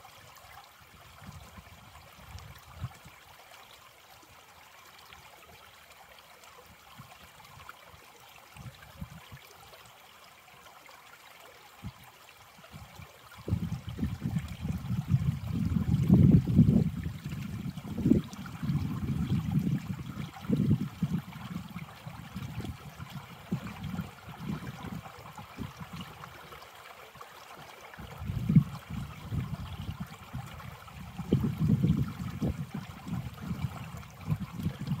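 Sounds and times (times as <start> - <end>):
creek trickling and gurgling: 0.0 - 35.0.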